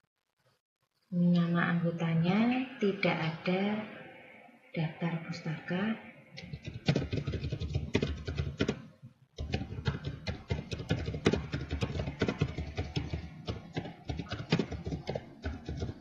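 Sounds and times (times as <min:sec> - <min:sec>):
typing on computer keyboard: 0:06.4 - 0:08.8, 0:09.4 - 0:16.0.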